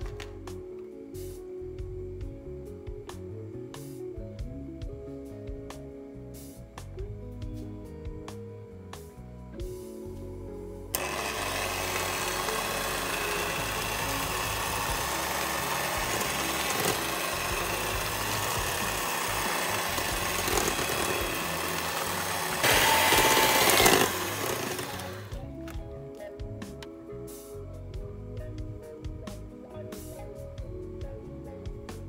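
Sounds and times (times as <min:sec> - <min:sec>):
electric stand mixer running: 0:10.9 - 0:25.4.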